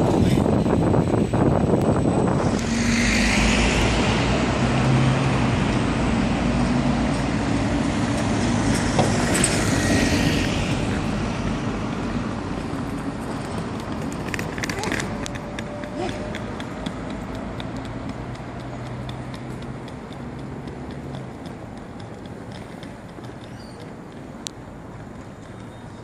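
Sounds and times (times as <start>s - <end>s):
high tram whine: 0.0s - 26.0s
tram rumbling on track: 0.0s - 26.0s.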